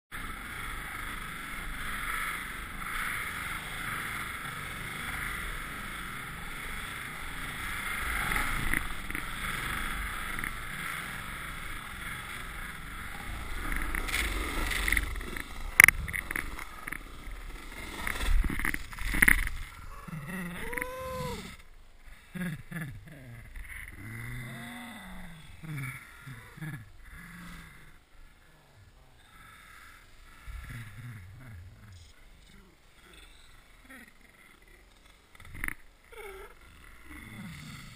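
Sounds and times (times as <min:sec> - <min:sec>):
rushing wind and snow: 0:00.1 - 0:37.9
person crying out: 0:19.8 - 0:21.6.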